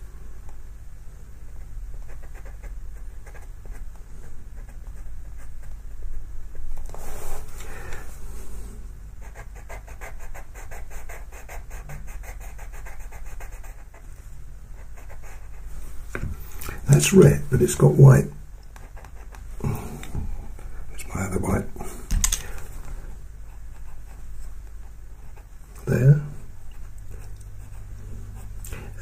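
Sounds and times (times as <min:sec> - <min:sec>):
pencil scratching on paper: 0:02.0 - 0:03.9, 0:04.6 - 0:06.2, 0:09.2 - 0:14.1, 0:14.8 - 0:15.8, 0:18.8 - 0:19.4.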